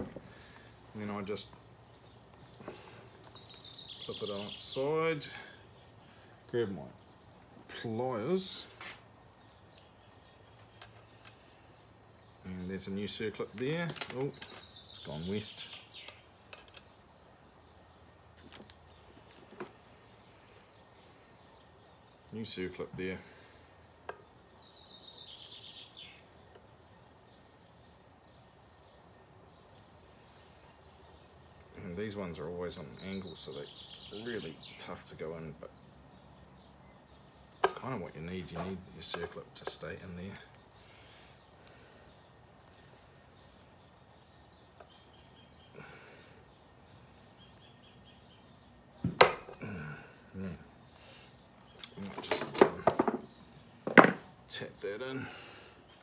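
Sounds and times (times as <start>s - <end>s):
hand-handling noise: 13.5s - 14.8s.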